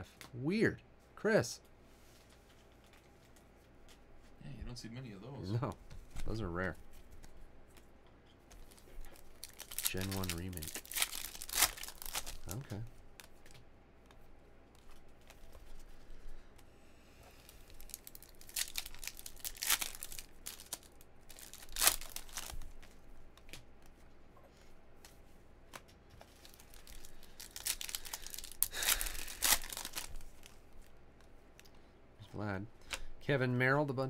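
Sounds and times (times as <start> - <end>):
foil wrappers tearing and crinkling: 8.6 - 13.3, 17.4 - 22.8, 26.2 - 30.8.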